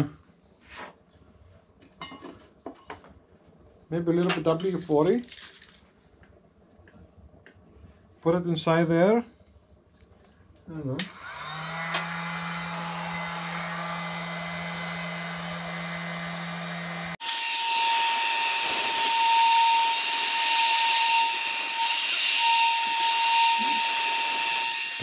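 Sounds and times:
heat gun fan whirring: 11.0 - 25.0.

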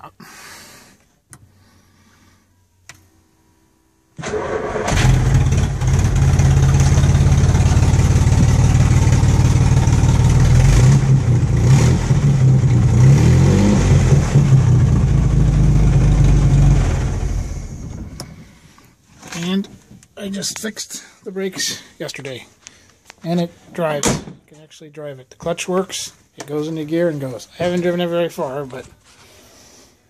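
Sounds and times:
car engine running and revving: 4.9 - 18.2.

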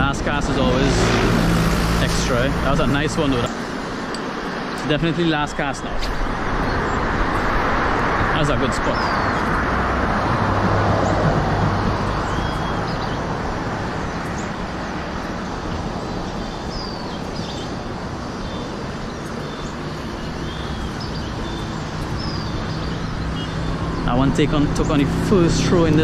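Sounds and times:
road traffic: 0.0 - 26.0
small birds chirping: 0.0 - 26.0.

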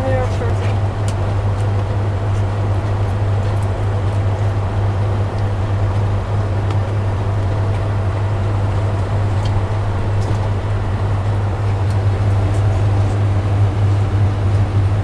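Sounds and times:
refrigeration machinery hum: 0.0 - 15.0.

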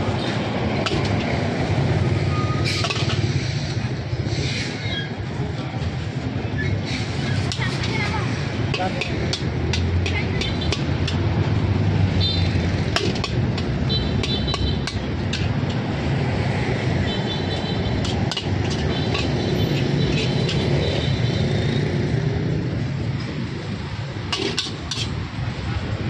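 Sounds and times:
metal spatula scraping a wok: 17.8 - 20.7, 24.3 - 25.2.

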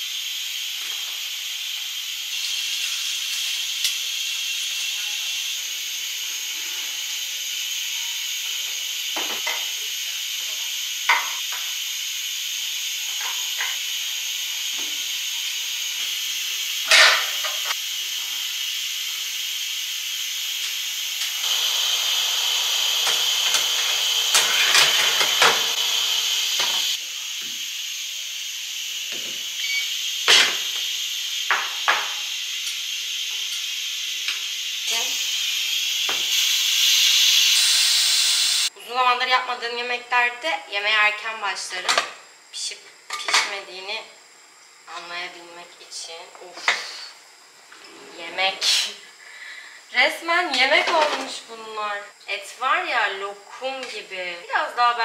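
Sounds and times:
pressure cooker hissing steam: 0.0 - 38.8, 46.3 - 51.3.

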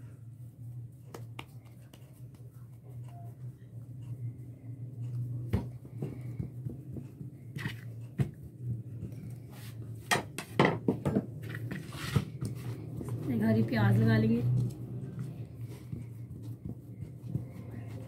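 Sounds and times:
steady low hum: 0.0 - 18.0
dough rustling on plastic: 11.3 - 18.0.

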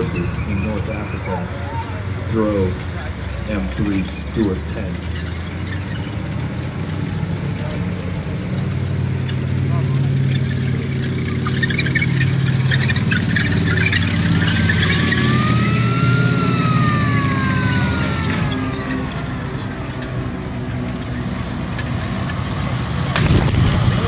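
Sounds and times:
tracked vehicle engine: 0.0 - 24.0
high squeal: 10.0 - 20.2.

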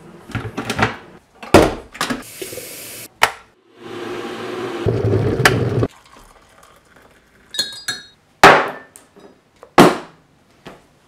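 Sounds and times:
ceramic clinks: 7.5 - 8.2.

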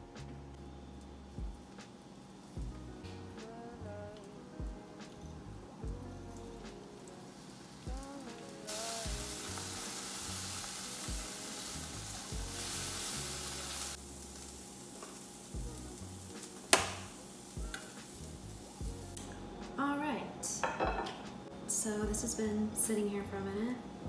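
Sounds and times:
food sizzling in frying pan: 6.8 - 19.2.

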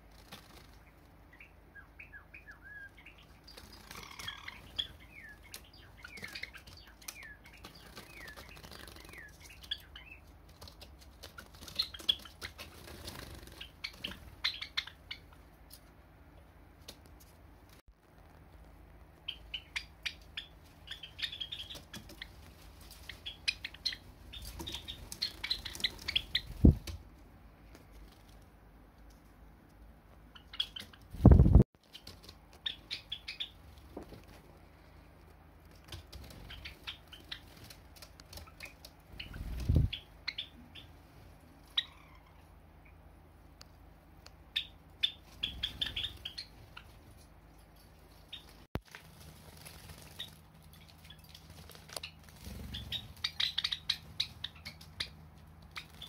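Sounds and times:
wings flapping: 0.0 - 1.2, 3.2 - 14.5, 20.2 - 27.0, 30.6 - 34.5, 35.7 - 40.0, 48.2 - 56.0
sparrows chipping: 0.2 - 15.6, 19.2 - 26.8, 30.2 - 33.8, 35.8 - 41.0, 41.6 - 43.0, 44.4 - 48.7, 49.5 - 56.0.

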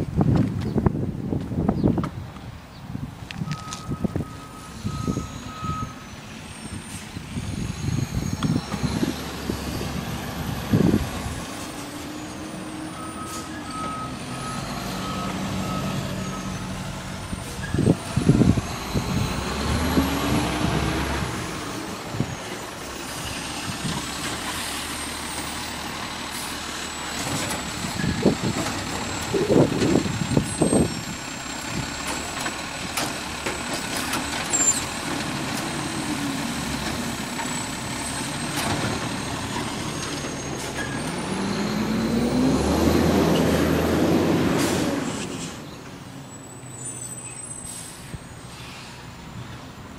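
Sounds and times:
garbage truck engine running: 6.5 - 43.5.

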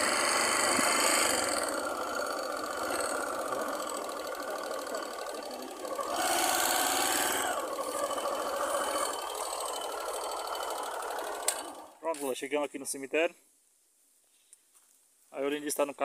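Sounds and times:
small motorcycle engine running: 0.0 - 12.0.

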